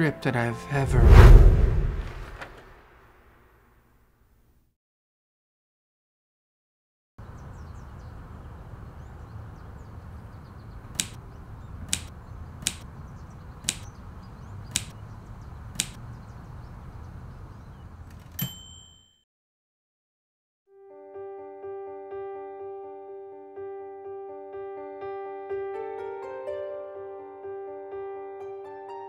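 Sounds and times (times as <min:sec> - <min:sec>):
typewriter key strikes: 0:11.0 - 0:11.2, 0:11.9 - 0:12.8, 0:13.7 - 0:13.9, 0:15.8 - 0:16.0
typewriter bell ding: 0:18.3 - 0:19.2.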